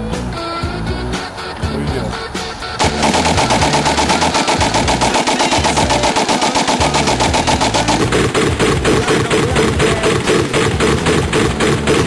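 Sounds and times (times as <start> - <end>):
rifle firing rapid shots: 2.8 - 12.0.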